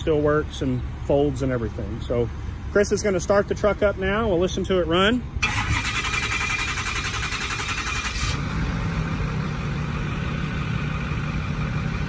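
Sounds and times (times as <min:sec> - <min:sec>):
diesel engine idling: 0:00.0 - 0:12.0
starter motor cranking: 0:05.4 - 0:08.4.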